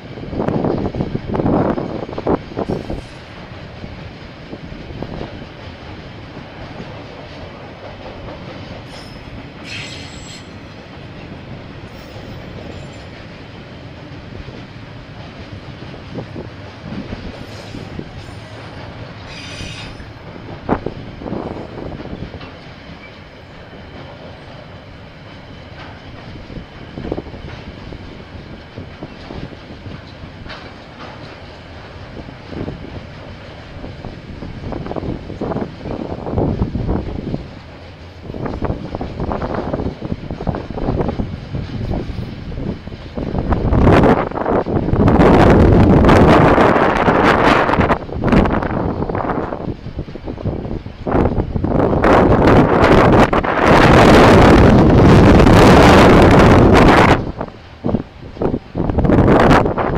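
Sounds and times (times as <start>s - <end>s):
train wagons rumbling and clattering: 0.0s - 59.9s
wheel squeals: 8.9s - 10.6s, 19.3s - 20.1s.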